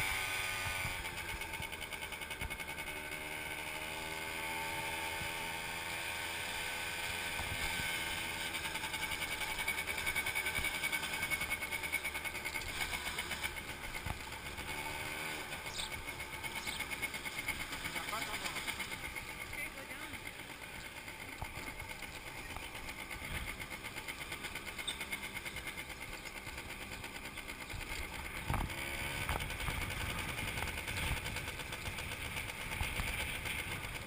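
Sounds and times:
motorbike engine revving: 0.0 - 34.0.

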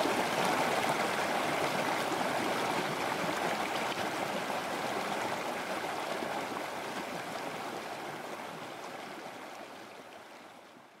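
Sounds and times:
stream rushing over rocks: 0.0 - 8.4.

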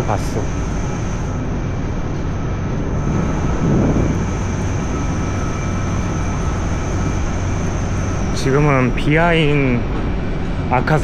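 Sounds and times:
traffic roar and hum: 0.0 - 11.0.

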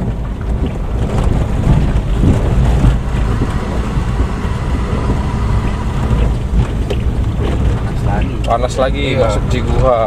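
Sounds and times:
car engine and road rumble: 0.0 - 10.0.

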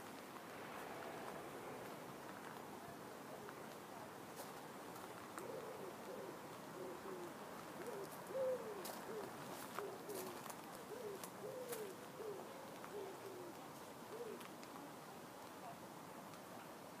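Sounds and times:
pigeons cooing: 5.4 - 14.5.

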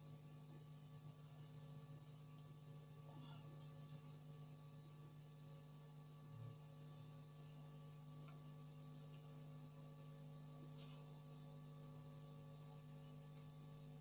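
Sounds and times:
low electrical hum: 0.0 - 14.0
faint small ticks: 8.2 - 9.4, 12.5 - 13.6.

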